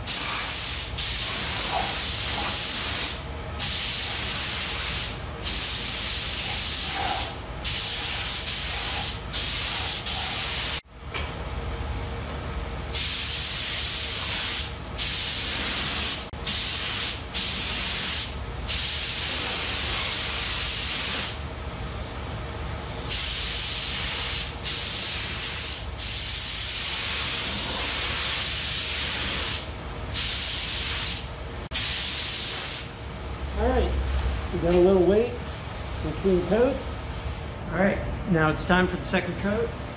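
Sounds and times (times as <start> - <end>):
paint spray gun hissing: 0.0 - 10.8, 13.0 - 21.4, 23.1 - 31.2.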